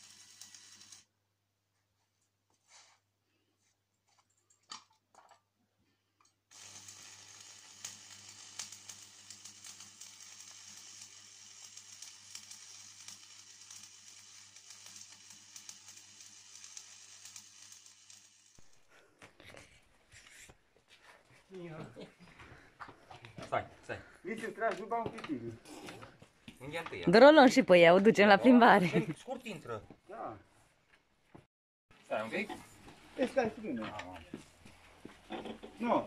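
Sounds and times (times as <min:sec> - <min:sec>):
welding arc crackling sizzle: 0:00.0 - 0:01.1, 0:06.5 - 0:18.9.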